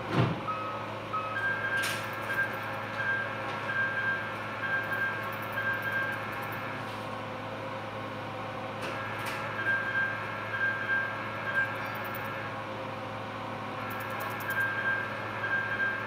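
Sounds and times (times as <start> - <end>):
steady machine hum: 0.0 - 16.0
short high electronic beeps: 14.2 - 16.0.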